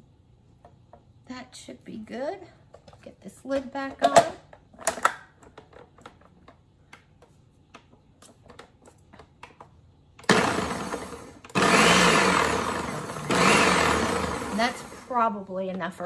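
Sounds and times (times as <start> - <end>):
blender motor whining: 10.2 - 15.2.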